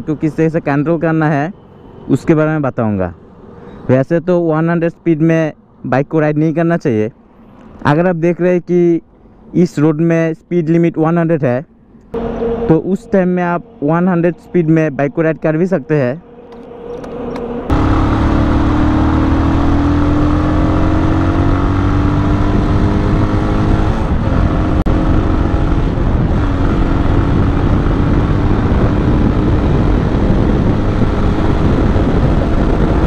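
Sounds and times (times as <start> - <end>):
motorcycle engine accelerating: 12.2 - 13.1, 16.5 - 33.0
wind noise on microphone: 16.3 - 33.0.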